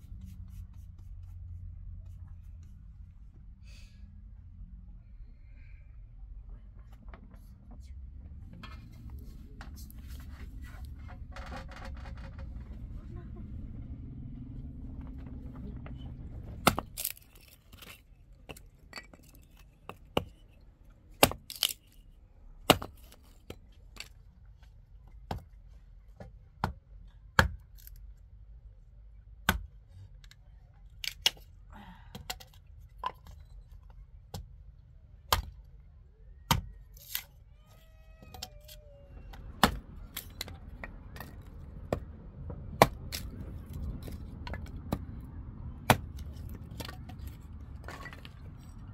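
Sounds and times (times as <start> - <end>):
hatchet striking wood: 16.6 - 19.1, 21.2 - 21.8, 22.7 - 23.2, 27.4 - 27.7, 29.4 - 29.7, 35.3 - 35.6, 36.5 - 37.3, 39.6 - 42.0, 42.8 - 43.3, 45.9 - 47.1
sticks cracking as they split: 21.2 - 22.0.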